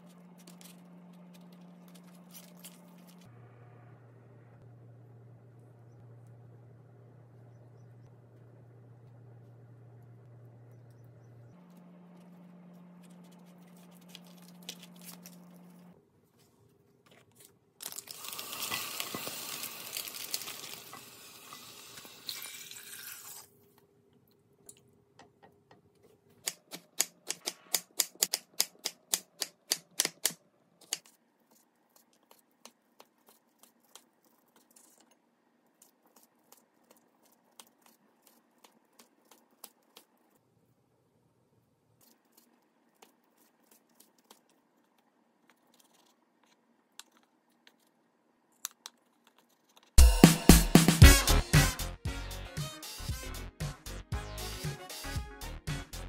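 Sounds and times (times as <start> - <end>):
low steady hum: 0.0 - 17.8.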